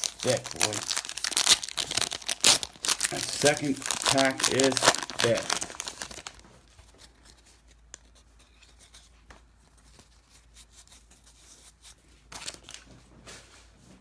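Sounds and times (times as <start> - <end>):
card pack rustle: 0.0 - 7.8.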